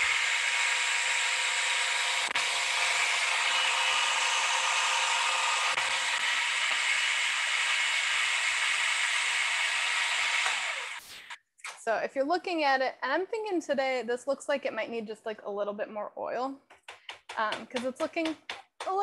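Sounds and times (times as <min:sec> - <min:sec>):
food processor whirring: 0:00.0 - 0:11.4.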